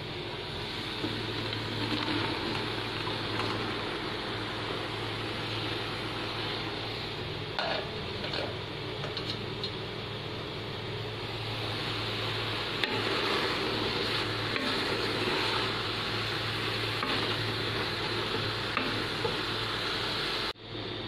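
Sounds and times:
frying sizzle: 0.0 - 21.0.

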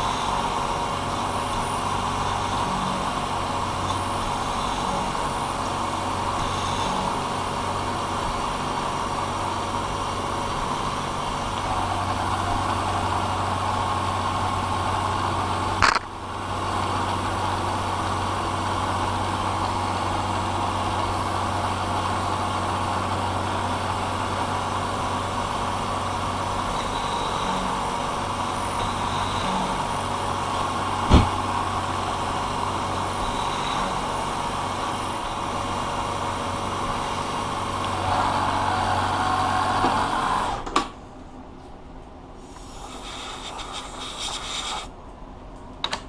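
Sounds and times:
milling machine spindle running: 0.0 - 40.6
sharp click: 15.8 - 16.1
faint hiss: 42.4 - 45.0.

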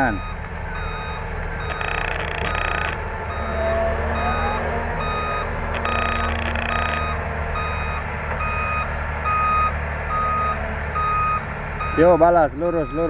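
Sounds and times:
heavy diesel machinery rumble: 0.0 - 13.0
reversing alarm beeping: 0.0 - 13.0.

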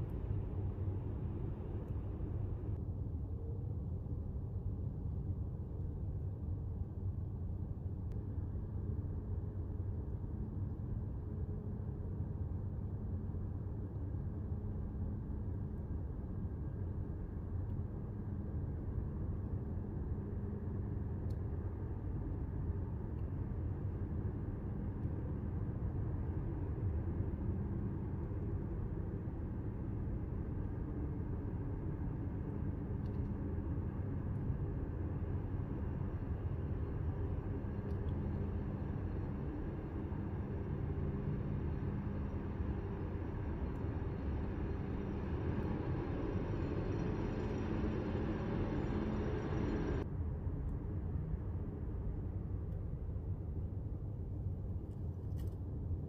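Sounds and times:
low outdoor rumble: 0.0 - 5.1, 6.4 - 56.0.

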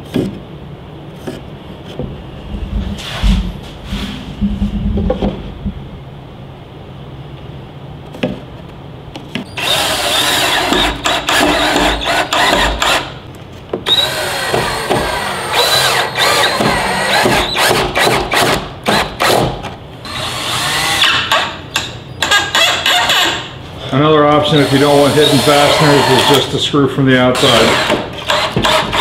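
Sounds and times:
power drill motor whining: 9.6 - 13.0, 13.9 - 17.7, 24.5 - 26.5.

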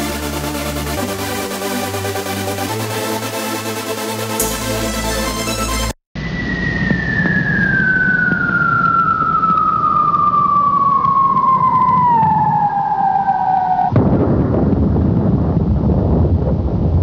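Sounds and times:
falling whistle: 6.2 - 14.0.

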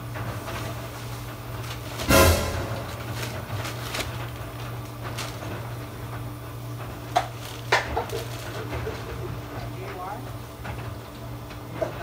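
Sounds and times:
steady low hum: 0.9 - 6.5.

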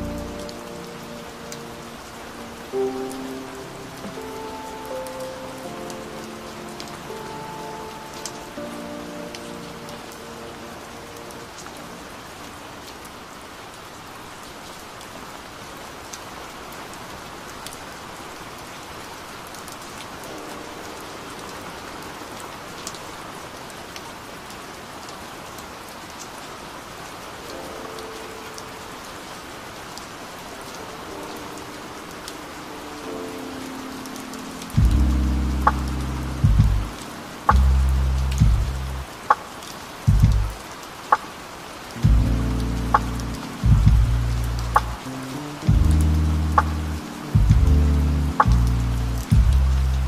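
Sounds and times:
steady rain: 0.0 - 50.0.

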